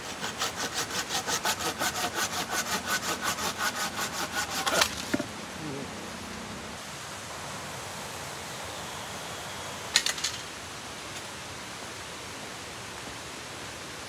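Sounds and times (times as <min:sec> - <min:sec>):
forest background hiss: 0:00.0 - 0:14.0.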